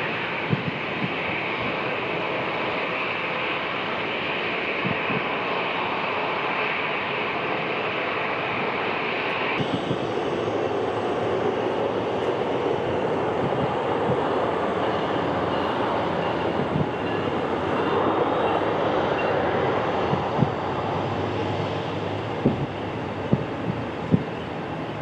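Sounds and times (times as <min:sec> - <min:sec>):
jet engines rushing: 0:00.0 - 0:25.0
low thumps: 0:22.4 - 0:24.3.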